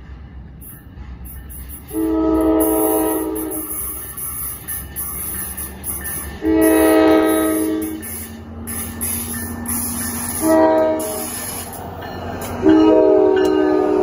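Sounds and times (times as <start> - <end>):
low rumble of train: 0.0 - 14.0
train horn blasts: 1.9 - 3.9, 6.4 - 8.4, 10.1 - 11.6, 12.6 - 14.0.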